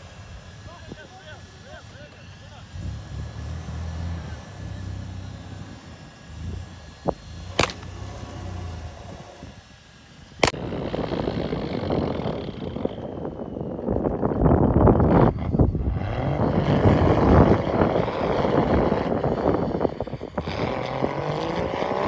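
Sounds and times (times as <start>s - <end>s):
engine running: 0.0s - 22.0s
rushing noise: 0.0s - 22.0s
sharp clicks: 7.6s - 8.0s.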